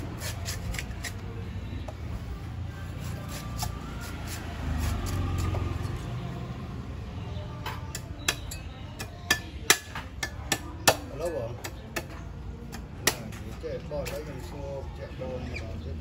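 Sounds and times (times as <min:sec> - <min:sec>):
cleaver chopping coconut husk: 0:00.0 - 0:01.2, 0:03.0 - 0:05.9, 0:07.9 - 0:14.3.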